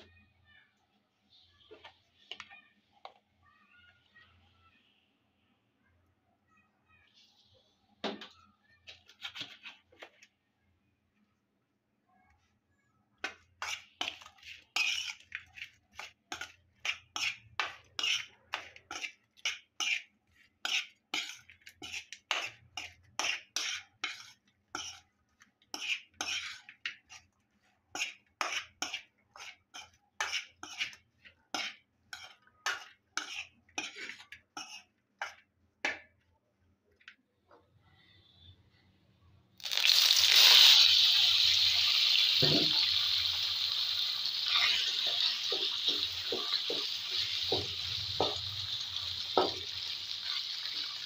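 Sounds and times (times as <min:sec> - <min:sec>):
metal spoon scraping steel bowl: 0:13.6 - 0:25.1, 0:25.7 - 0:27.3, 0:28.0 - 0:35.4, 0:40.6 - 0:49.6.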